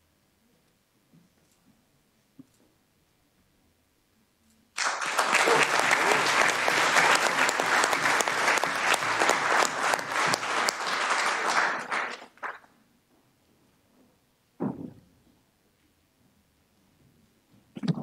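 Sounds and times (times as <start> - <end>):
room of people applauding: 4.8 - 12.7.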